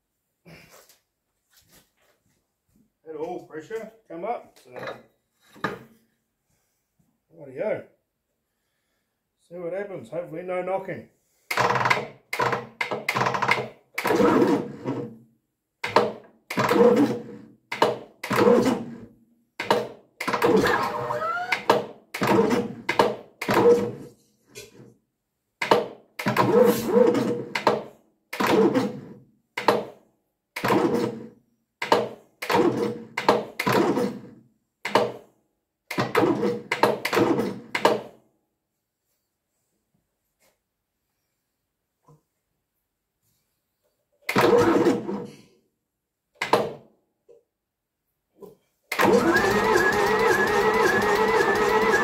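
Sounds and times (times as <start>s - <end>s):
diesel engine cranking by starter motor: 48.9s - 52.0s.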